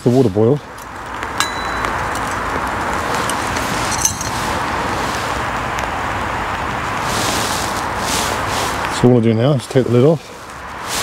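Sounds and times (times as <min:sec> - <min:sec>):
light metal clink: 0:01.4 - 0:02.6, 0:03.2 - 0:04.5
boiling water hissing: 0:04.4 - 0:11.0.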